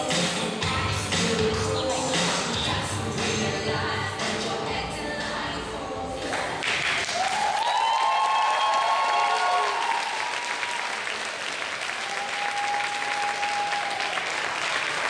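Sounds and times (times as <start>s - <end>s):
audience applauding: 6.6s - 15.0s
high held cheers: 7.0s - 15.0s.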